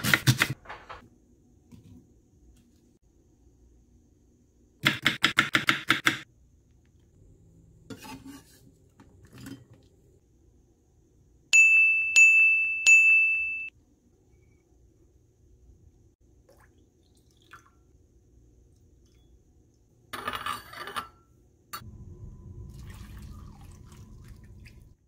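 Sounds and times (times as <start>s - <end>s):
high bell-like dings: 11.5s - 13.7s.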